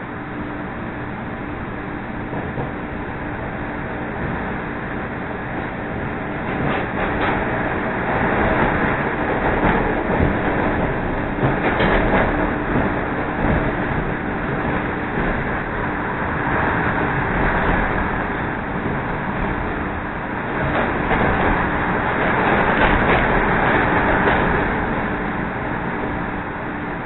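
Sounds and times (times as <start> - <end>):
low train hum: 0.0 - 27.0
train wheels rumbling on rail: 0.0 - 27.0
clicks at rail joints: 6.4 - 15.7, 20.5 - 25.1.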